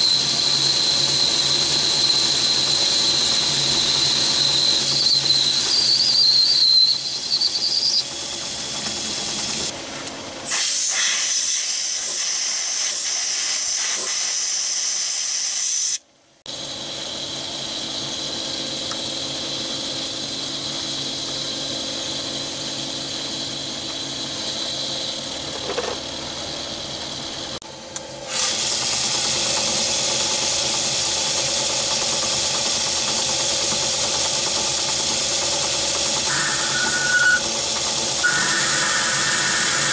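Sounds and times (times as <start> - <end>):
metal lathe boring a tube: 0.0 - 10.7, 28.3 - 39.9.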